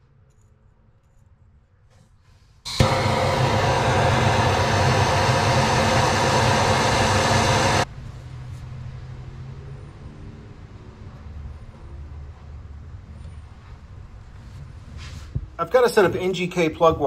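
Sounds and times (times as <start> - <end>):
gas torch flame hissing: 2.7 - 7.9.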